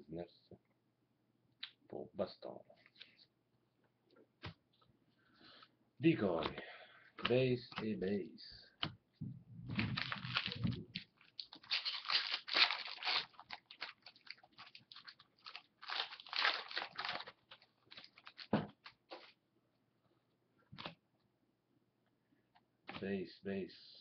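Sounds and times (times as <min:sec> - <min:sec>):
foil wrapper crinkling: 0:09.8 - 0:19.0.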